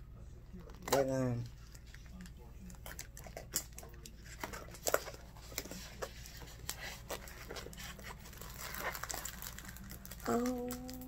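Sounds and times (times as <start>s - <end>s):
plastic bag crinkling: 2.8s - 11.0s.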